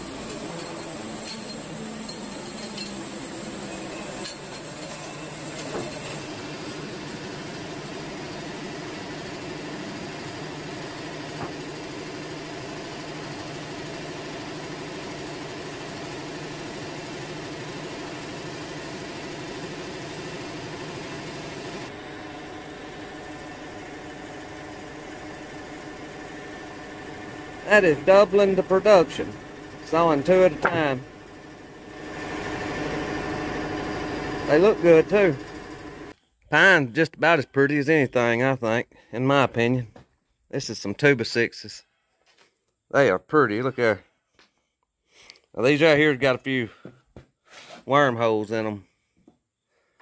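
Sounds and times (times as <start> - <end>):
sawmill engine running: 0.0 - 36.1.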